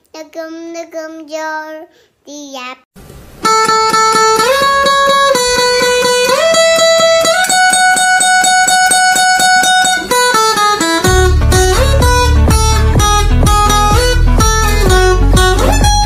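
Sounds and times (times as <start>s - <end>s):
guitar picking one note rapidly: 3.4s - 16.0s
deep bass: 11.0s - 16.0s.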